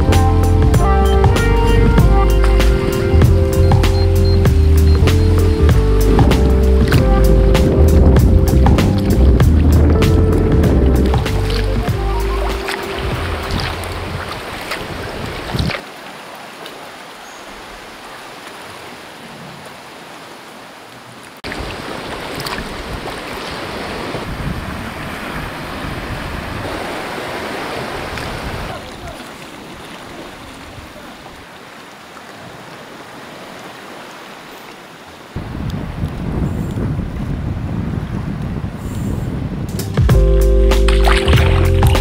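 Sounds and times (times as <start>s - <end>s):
wind rumbling on microphone: 0.0s - 15.8s, 21.4s - 31.0s, 35.4s - 42.0s
paddle splashing: 0.0s - 35.5s, 40.7s - 42.0s
waves foaming over rocks: 0.7s - 38.8s.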